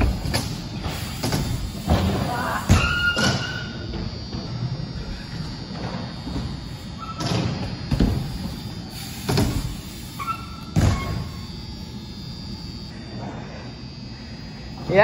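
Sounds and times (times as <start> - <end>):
bikes landing on wooden ramps: 0.0 - 4.5, 5.7 - 11.7
short high squeaks: 2.7 - 3.9, 10.0 - 11.6.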